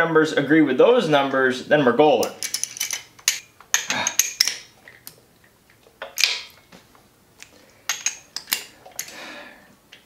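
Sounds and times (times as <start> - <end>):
tool clicks and metallic clinks: 2.2 - 4.7, 7.9 - 9.2.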